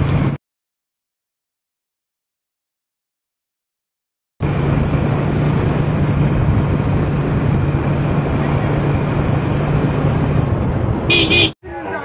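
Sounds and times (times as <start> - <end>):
vehicle engine running: 4.4 - 11.5
wind rushing over microphone: 4.4 - 11.5.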